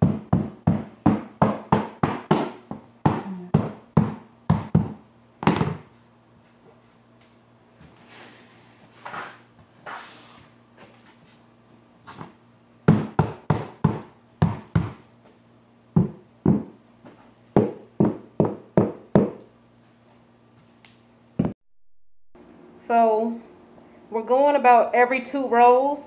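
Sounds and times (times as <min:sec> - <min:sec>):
mallet knocking vinyl plank: 0:00.0 - 0:05.8.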